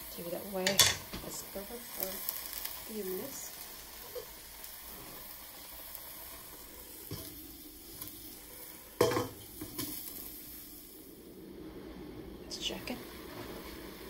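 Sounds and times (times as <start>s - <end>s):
cabbage sizzling in a pan: 0.0s - 14.0s
glass lid clanking on pan: 9.0s - 9.4s.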